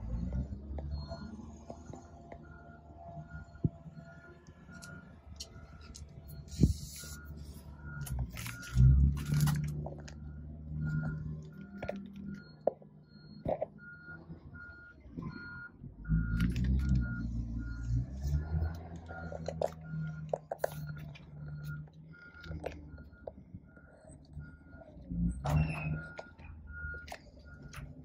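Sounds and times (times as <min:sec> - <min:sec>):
repeating electronic beep: 0:00.0 - 0:27.9
handling noise rustle and scrape: 0:05.8 - 0:10.2.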